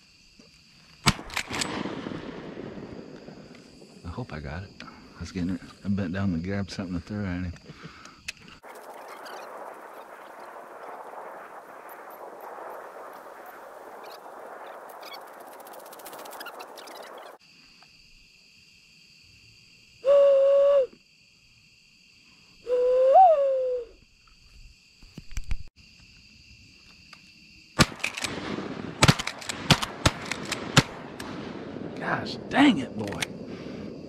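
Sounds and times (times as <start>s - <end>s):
shotgun shots: 1.0s - 3.6s, 27.8s - 33.4s.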